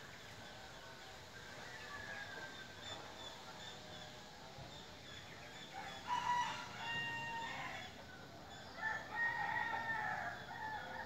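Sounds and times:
rooster crowing: 6.0s - 7.8s, 8.8s - 11.0s.

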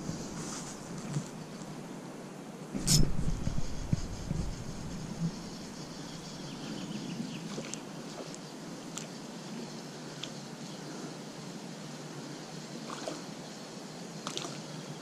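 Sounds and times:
fishing rod thump and rumble: 2.8s - 5.4s.

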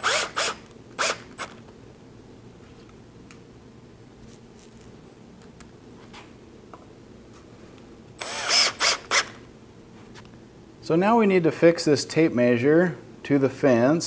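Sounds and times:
cordless drill motor driving screw: 0.0s - 1.6s, 8.2s - 9.4s.

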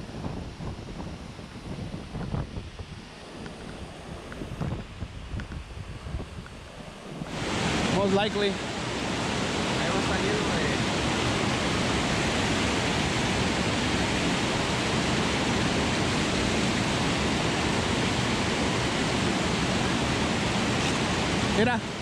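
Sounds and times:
creek water rushing: 2.9s - 22.0s.

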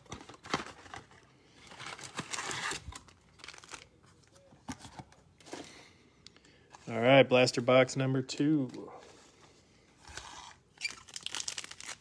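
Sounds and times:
foil card packs crinkling: 0.0s - 4.1s, 10.1s - 12.0s.

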